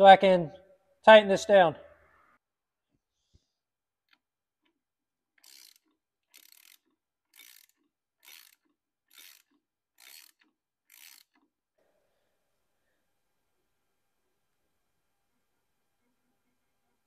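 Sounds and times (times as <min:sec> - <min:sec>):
ratchet wrench clicking: 0:05.4 - 0:11.5.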